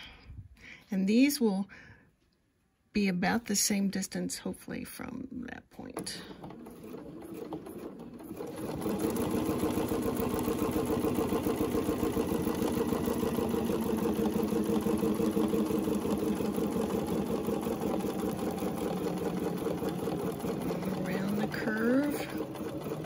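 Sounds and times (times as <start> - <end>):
sewing machine stitching: 5.8 - 23.0.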